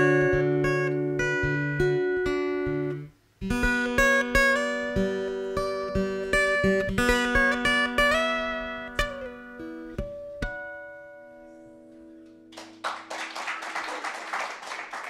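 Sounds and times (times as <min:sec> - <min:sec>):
acoustic guitar chords ringing: 0:00.0 - 0:12.5
audience clapping: 0:12.5 - 0:15.0.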